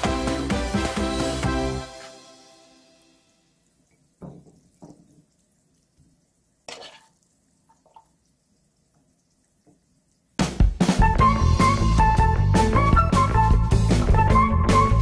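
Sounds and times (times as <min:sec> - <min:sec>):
background music: 0:00.0 - 0:03.5, 0:10.9 - 0:15.0
spatula scraping frying pan: 0:06.6 - 0:07.3.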